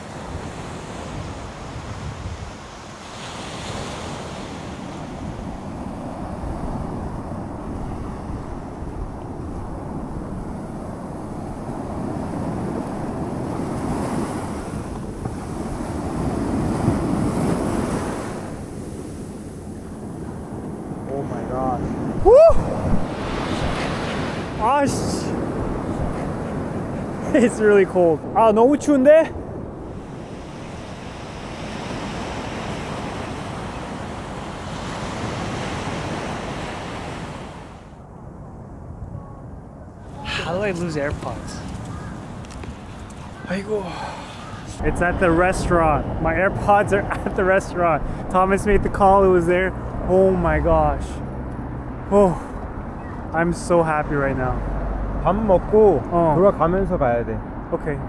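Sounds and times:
wind buffeting microphone: 0.0s - 2.8s, 4.7s - 37.3s
sea waves washing up beach: 0.0s - 38.0s, 40.0s - 56.3s.

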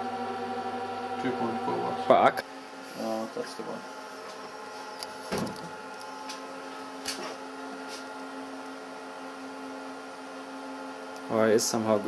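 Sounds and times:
laboratory equipment humming: 0.0s - 12.0s
dull thump: 5.3s - 5.6s.

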